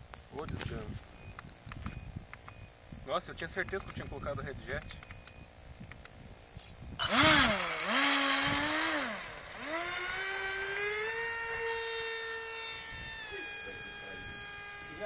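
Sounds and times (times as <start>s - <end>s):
electric motor and propeller whining: 7.0s - 15.0s.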